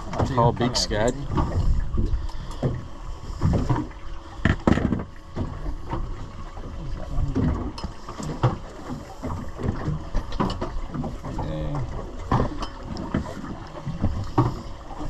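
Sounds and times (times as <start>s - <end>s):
knocks and thumps on a boat: 0.0s - 15.0s
water noise: 0.0s - 15.0s
wind: 0.0s - 15.0s.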